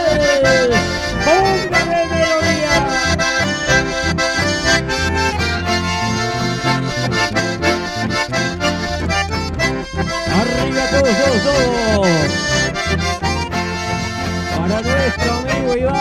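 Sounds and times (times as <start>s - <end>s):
accordion melody: 0.0s - 16.0s
acoustic guitar: 0.0s - 16.0s
bandoneon: 0.0s - 16.0s
electric bass: 0.0s - 16.0s.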